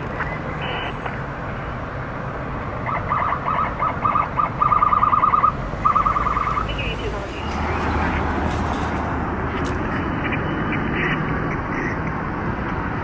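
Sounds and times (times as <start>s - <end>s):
traffic rumble: 0.0s - 13.0s
emergency vehicle horn blasts: 0.6s - 1.0s.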